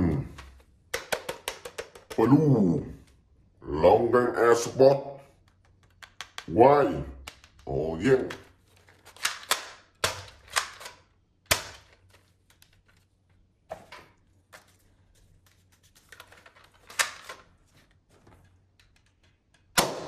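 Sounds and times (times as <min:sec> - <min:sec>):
sharp plastic snaps: 0:09.1 - 0:12.1.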